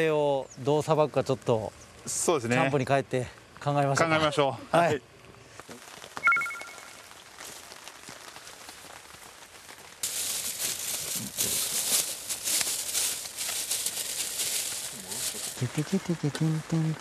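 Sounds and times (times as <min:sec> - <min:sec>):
campfire crackling: 0:00.0 - 0:17.0
plastic bags rustling: 0:07.2 - 0:16.0.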